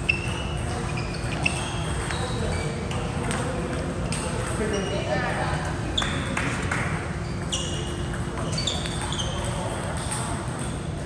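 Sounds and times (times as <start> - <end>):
sneakers squeaking on court floor: 0.0 - 3.6, 4.2 - 5.2, 5.9 - 6.4, 7.0 - 10.9.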